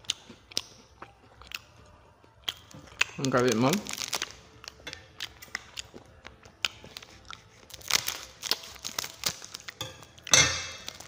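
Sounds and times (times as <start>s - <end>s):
wrapper crinkling: 3.1s - 4.6s, 6.9s - 9.8s, 10.7s - 11.0s.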